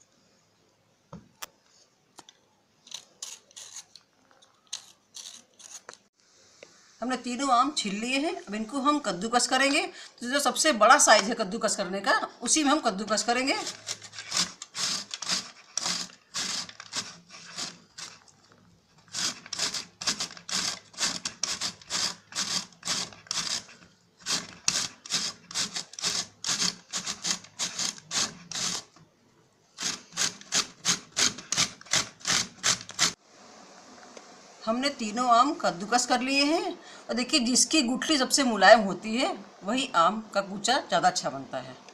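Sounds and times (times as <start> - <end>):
mango rasping on grater: 2.9 - 4.0, 4.7 - 6.0, 13.1 - 29.0, 29.8 - 33.2.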